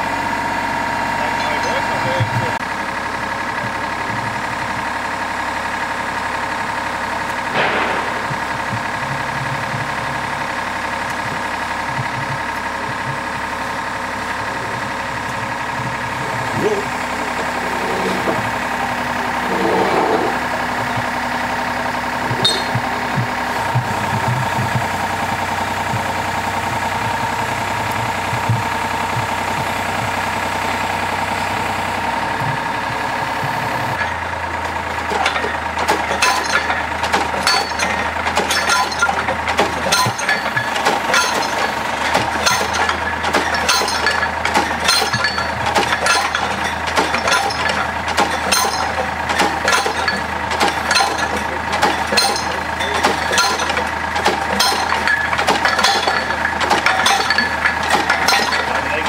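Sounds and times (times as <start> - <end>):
drilling rig engine running: 0.0 - 59.0
metallic clinks and knocks: 16.5 - 18.6, 22.3 - 24.8, 35.1 - 59.0.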